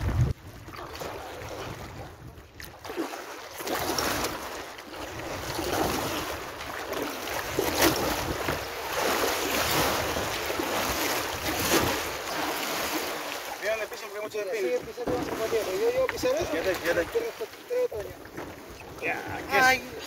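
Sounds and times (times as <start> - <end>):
wind buffeting microphone: 0.0 - 2.8
paddle strokes splashing: 0.0 - 20.0
water washing along hull: 0.0 - 20.0.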